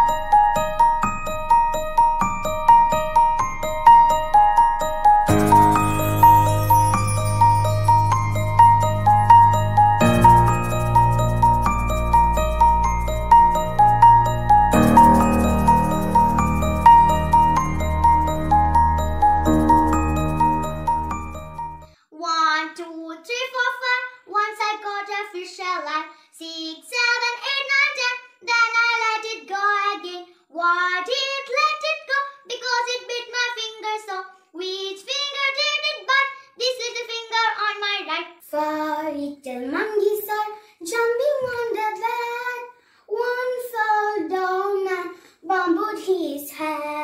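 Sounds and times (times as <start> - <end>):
girl singing: 22.1 - 47.0.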